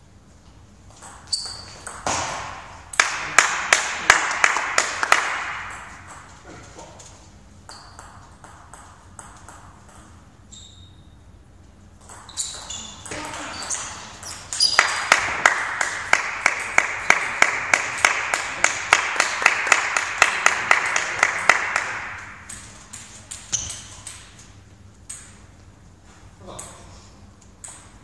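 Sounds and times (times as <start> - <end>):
shoes squeaking: 1.0 - 1.9, 12.0 - 15.0, 23.1 - 24.1.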